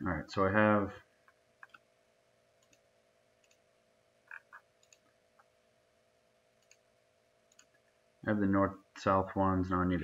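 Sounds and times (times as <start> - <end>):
faint steady hum: 0.0 - 10.0
computer mouse clicks: 1.2 - 1.9, 2.6 - 3.6, 4.2 - 5.6, 6.6 - 6.9, 7.5 - 7.8.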